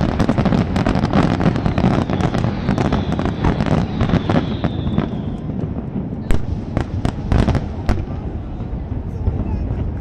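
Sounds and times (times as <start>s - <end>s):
fireworks bursts and crackling bangs: 0.0s - 10.0s
faint high whistle: 1.6s - 5.5s.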